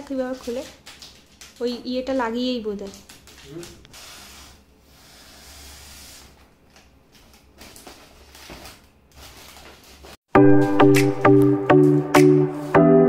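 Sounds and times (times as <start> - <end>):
foil balloons crinkling: 0.0 - 4.6, 5.7 - 10.2
electronic music with steady beat: 10.4 - 13.0.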